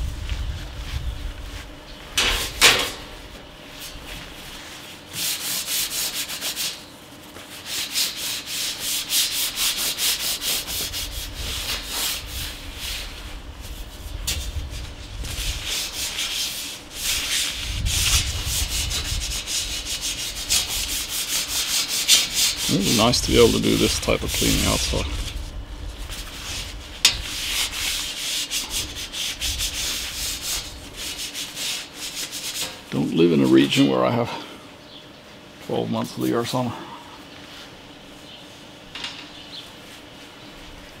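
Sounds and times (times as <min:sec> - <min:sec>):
paper towel wiping: 0:03.2 - 0:33.9.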